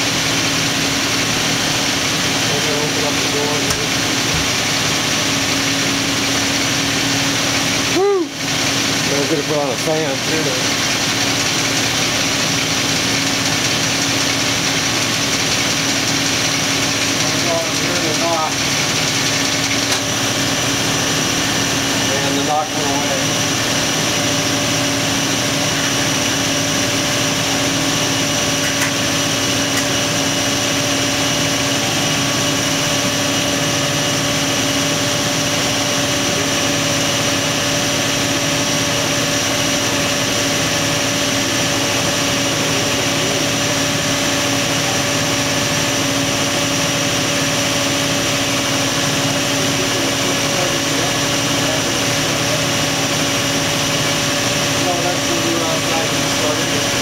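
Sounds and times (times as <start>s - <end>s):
car engine idling: 0.0s - 57.0s.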